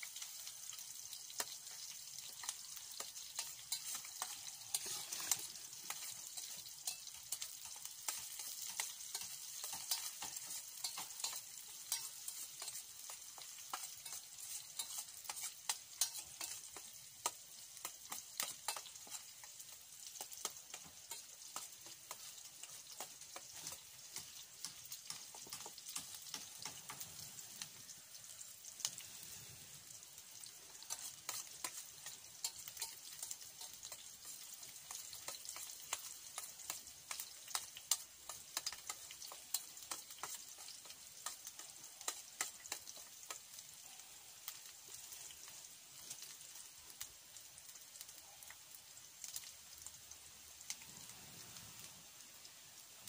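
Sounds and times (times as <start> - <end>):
fire crackling: 0.0 - 53.0
onions sizzling in oil: 0.0 - 53.0
spoon scraping a pan: 1.4 - 27.8, 30.4 - 43.6.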